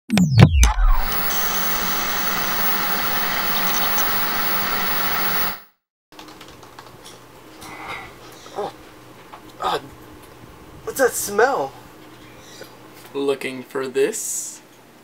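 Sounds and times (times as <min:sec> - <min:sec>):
tv static hiss: 0:00.9 - 0:05.6.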